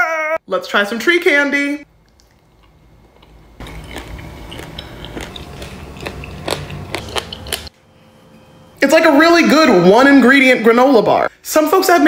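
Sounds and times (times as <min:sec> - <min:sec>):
crunching and chewing cookie: 0:02.0 - 0:07.7.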